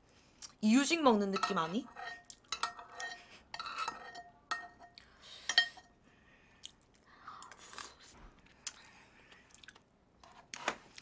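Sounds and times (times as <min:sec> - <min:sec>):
metal spoon clinking on bowl: 0:01.2 - 0:05.9.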